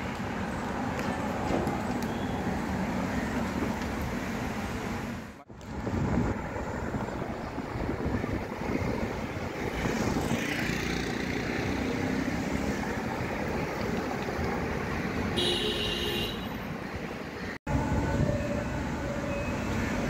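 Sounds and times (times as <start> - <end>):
traffic rumble of engines and tyres: 0.0 - 20.0
car horn honk: 15.4 - 16.6.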